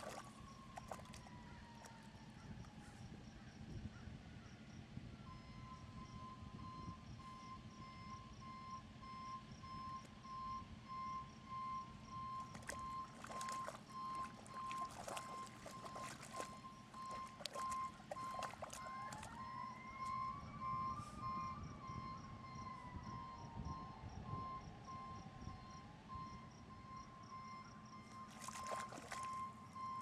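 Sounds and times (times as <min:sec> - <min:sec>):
dog splashing in mud puddle: 0:00.0 - 0:02.0, 0:12.4 - 0:19.4, 0:28.2 - 0:29.5
reversing alarm beeping: 0:00.0 - 0:03.3, 0:05.2 - 0:30.0
siren rising in pitch: 0:11.0 - 0:30.0.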